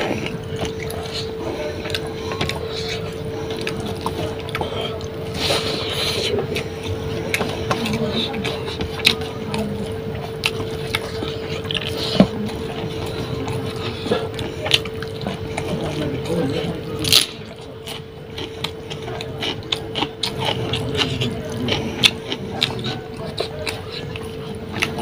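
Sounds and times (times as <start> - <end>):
person chewing: 0.0 - 25.0
steady hum: 0.0 - 25.0.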